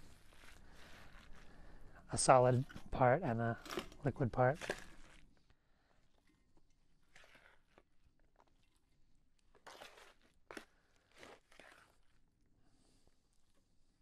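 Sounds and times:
sticky rice crunching and rustling: 0.0 - 1.9, 3.5 - 13.8
scrapes in a plastic beaker: 7.0 - 8.0.

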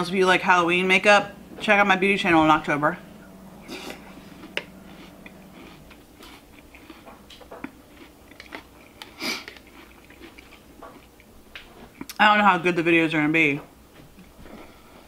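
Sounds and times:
person chewing crunchy cereal: 3.7 - 12.2.

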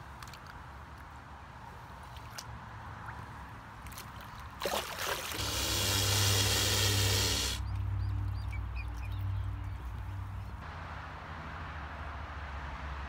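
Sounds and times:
lake water splashing: 3.8 - 7.8
water pouring: 4.6 - 7.6.

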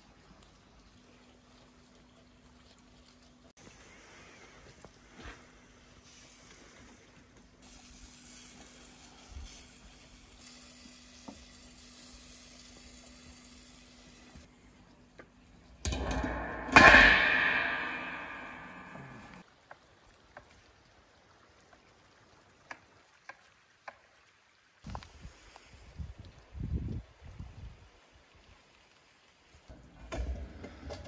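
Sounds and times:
metal lid clanging: 15.8 - 19.4
metal lid scraping: 15.8 - 19.4.

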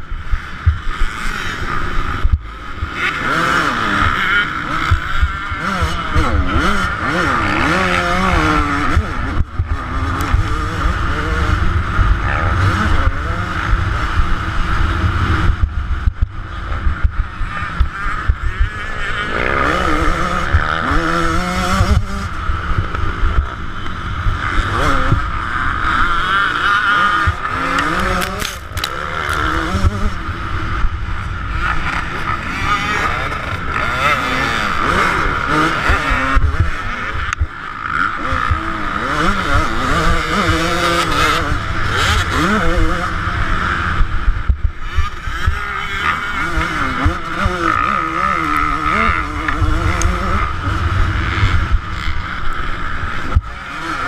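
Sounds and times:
motorbike engine revving: 0.0 - 54.0
low rumble: 9.0 - 20.8, 48.6 - 53.6.

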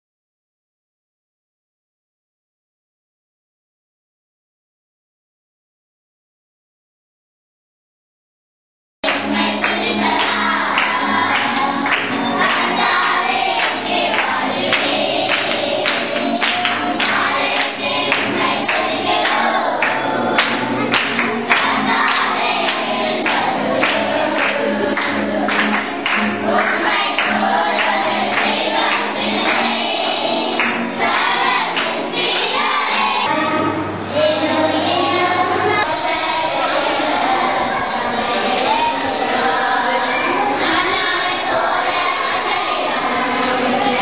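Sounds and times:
people clapping: 9.0 - 33.3
acoustic guitar: 9.0 - 44.0
children and women singing: 9.0 - 44.0.

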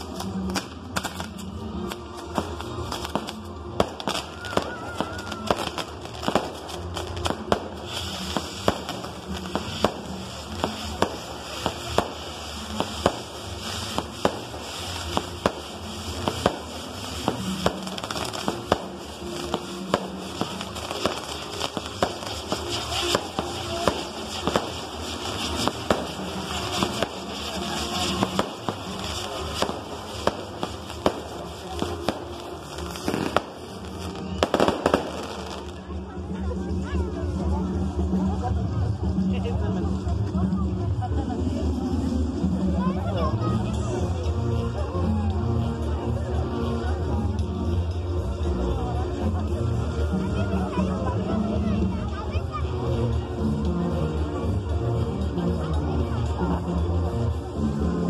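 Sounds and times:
fireworks bangs and pops: 0.0 - 36.5
fireworks crackling: 0.0 - 58.0
firework whistle: 3.8 - 6.2.

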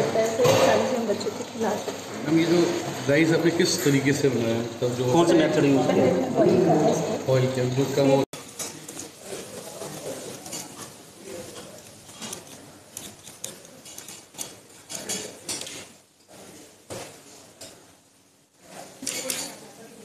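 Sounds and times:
utensils and dishes clinking: 1.8 - 4.4, 8.4 - 17.9, 18.7 - 19.9.

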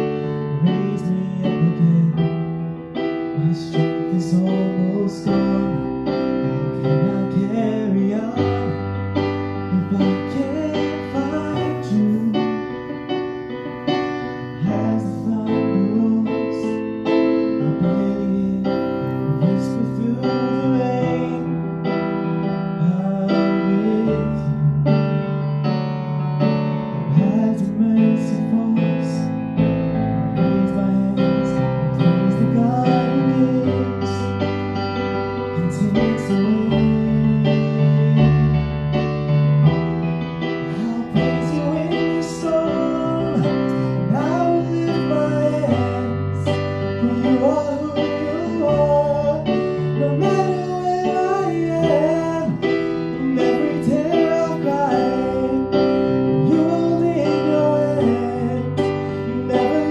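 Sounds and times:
person singing: 0.0 - 13.2, 13.8 - 25.1, 26.9 - 29.4, 30.3 - 39.2, 40.4 - 59.9
slow piano chords: 0.0 - 59.9.

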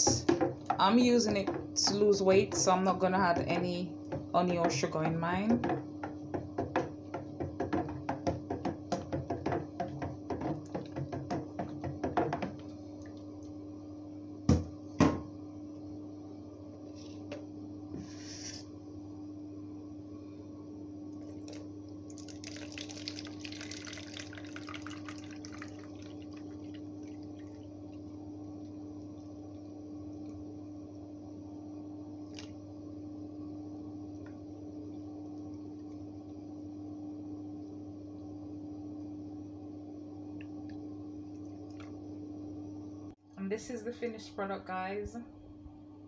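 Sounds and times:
wooden spoon knocking in blender jug: 0.0 - 12.7
steady low hum: 0.0 - 46.0
liquid splashing through strainer: 21.2 - 28.0.

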